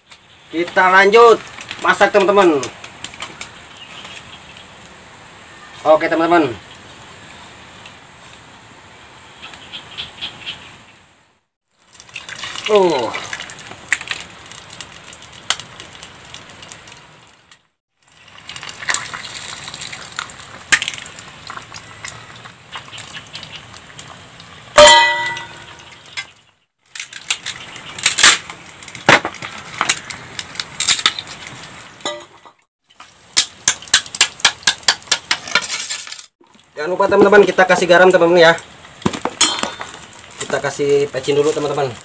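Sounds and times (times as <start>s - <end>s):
eggs sizzling in oil: 11.7s - 35.6s.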